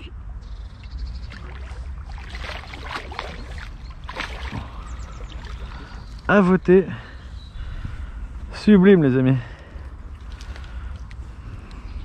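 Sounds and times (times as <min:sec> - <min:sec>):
water splashing and sloshing: 0:00.0 - 0:06.8, 0:09.5 - 0:11.7.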